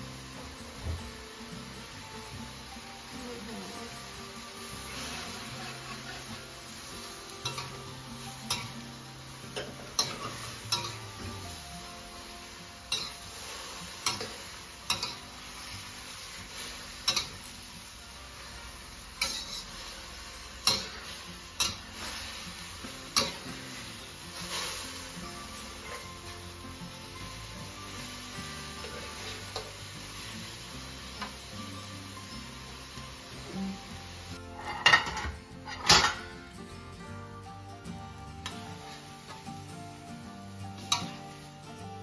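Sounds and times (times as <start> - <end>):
vegetables sizzling: 0.0 - 42.0
spatula clanking against wok: 14.0 - 15.2, 20.6 - 21.8.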